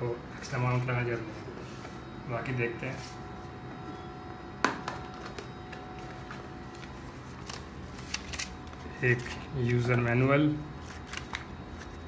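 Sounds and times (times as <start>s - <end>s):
steady background hum: 0.0s - 12.0s
paper rustling: 6.0s - 10.1s, 10.8s - 12.0s.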